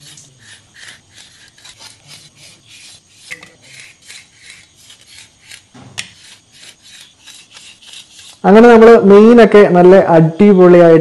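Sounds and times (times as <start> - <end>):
knife scraping fish skin: 0.0 - 8.5.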